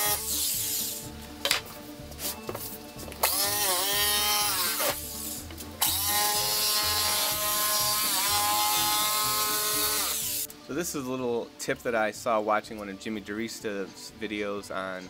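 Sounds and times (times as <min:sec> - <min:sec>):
jigsaw cutting plywood: 0:03.2 - 0:05.0, 0:05.8 - 0:10.5.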